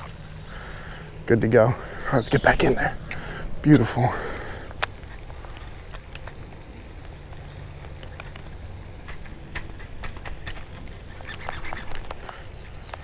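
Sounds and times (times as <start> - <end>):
short calls: 0.0 - 5.7
low wind rumble: 0.0 - 13.0.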